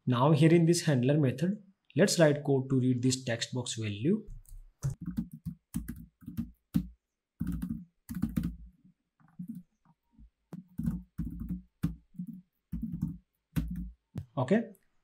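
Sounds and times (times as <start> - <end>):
typing on a computer keyboard: 4.4 - 8.7, 10.6 - 13.9.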